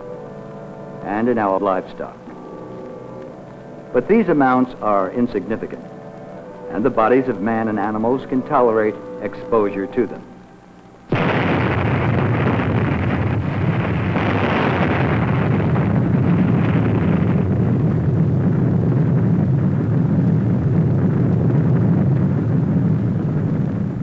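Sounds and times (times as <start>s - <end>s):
explosion rumble: 11.1s - 24.0s.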